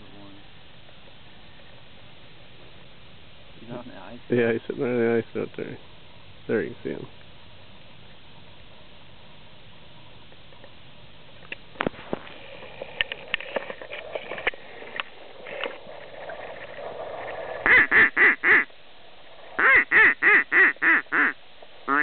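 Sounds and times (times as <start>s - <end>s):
duck quacking: 17.6s - 18.7s, 19.6s - 22.0s.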